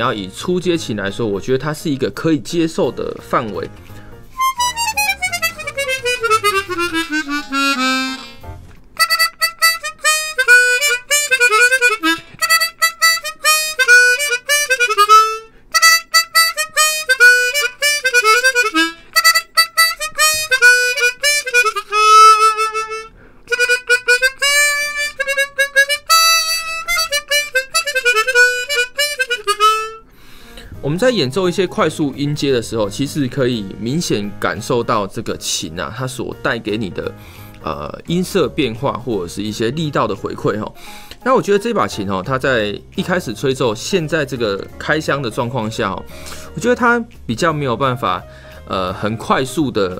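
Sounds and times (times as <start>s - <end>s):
chromatic harmonica playing: 3.5s - 30.8s, 46.1s - 46.6s.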